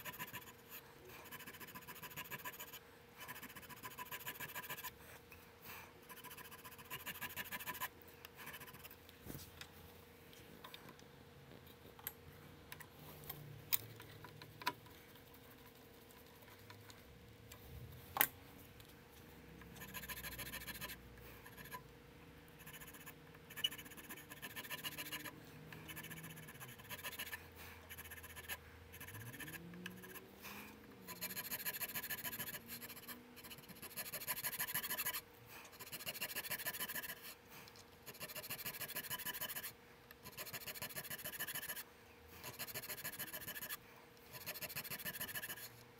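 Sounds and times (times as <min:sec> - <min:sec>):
file rasping on wood: 0:00.0 - 0:00.5, 0:01.3 - 0:04.9, 0:06.1 - 0:07.9, 0:23.8 - 0:25.3, 0:25.9 - 0:30.2, 0:31.1 - 0:35.2, 0:35.8 - 0:37.2, 0:38.1 - 0:39.7, 0:40.3 - 0:41.8, 0:42.4 - 0:43.8, 0:44.4 - 0:45.7.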